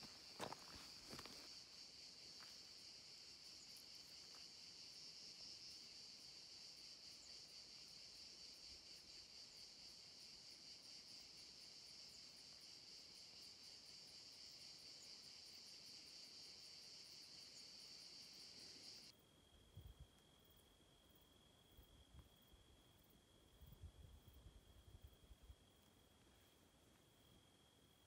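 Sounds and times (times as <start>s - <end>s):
footsteps on stony ground: 0.0s - 1.6s
crickets chirping: 0.0s - 28.0s.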